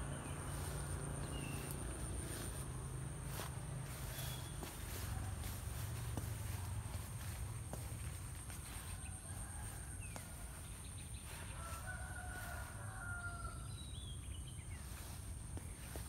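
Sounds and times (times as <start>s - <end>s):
low wind rumble: 0.0s - 11.3s
faint rooster crowing: 3.3s - 16.0s.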